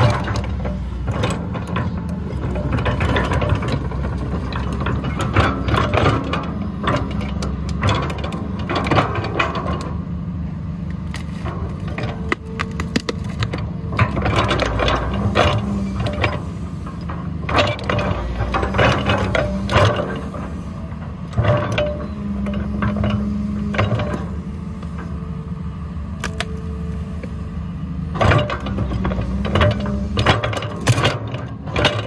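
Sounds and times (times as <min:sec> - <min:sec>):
metallic clanks and rattles of bucket: 0:00.0 - 0:09.9, 0:11.4 - 0:20.3, 0:21.3 - 0:24.3, 0:28.2 - 0:32.0
excavator diesel engine running: 0:00.0 - 0:32.0.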